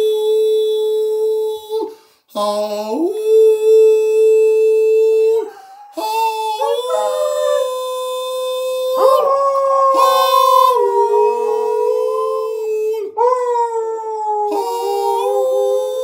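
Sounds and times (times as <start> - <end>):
dog and people howling: 3.2 - 16.0.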